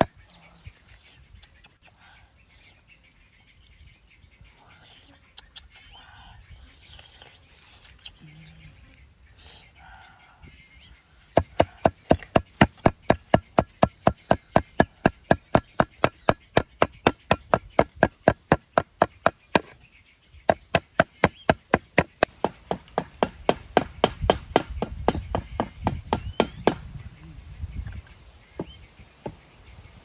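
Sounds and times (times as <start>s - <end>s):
cleaver chopping on wooden board: 11.4s - 19.8s, 20.5s - 26.8s.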